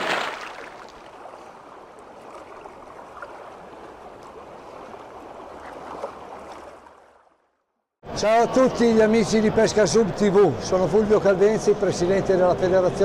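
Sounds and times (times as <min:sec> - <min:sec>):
rushing bubbling water: 0:00.0 - 0:07.2
water splash: 0:00.0 - 0:07.3.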